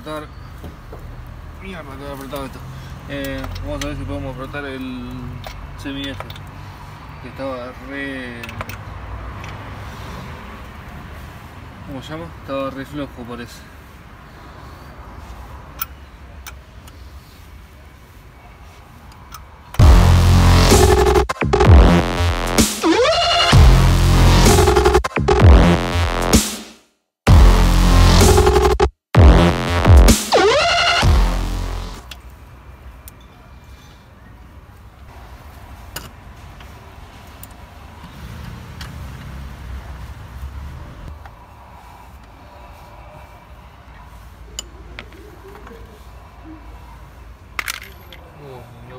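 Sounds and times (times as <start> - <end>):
electronic music with heavy bass: 19.8 - 26.7, 27.3 - 32.0.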